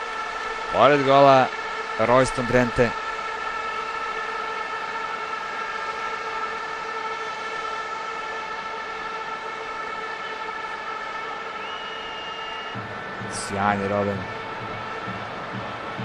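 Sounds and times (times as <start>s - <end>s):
stadium crowd noise: 0.0s - 16.0s
steady tone with overtones: 12.8s - 16.0s.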